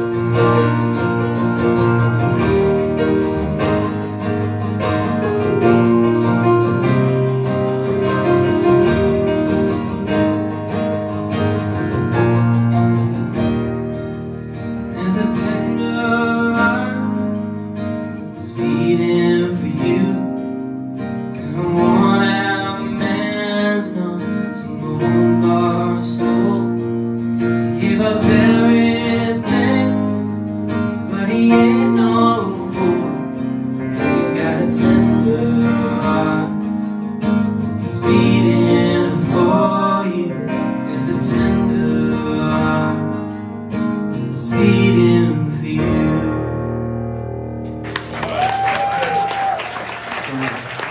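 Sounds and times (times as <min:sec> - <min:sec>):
acoustic guitars strumming: 0:00.0 - 0:50.9
people singing: 0:27.8 - 0:30.3, 0:31.1 - 0:33.4, 0:34.0 - 0:36.7, 0:37.8 - 0:43.2.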